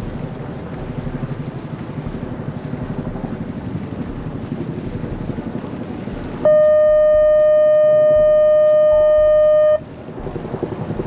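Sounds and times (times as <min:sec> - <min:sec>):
boat engine running: 0:00.0 - 0:11.0
wind noise on microphone: 0:00.0 - 0:11.0
boat horn blast: 0:06.4 - 0:09.9.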